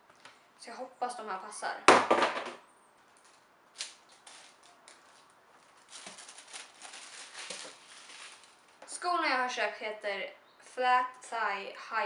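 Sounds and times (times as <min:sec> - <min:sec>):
packaging rustling and crinkling: 0:03.1 - 0:08.8.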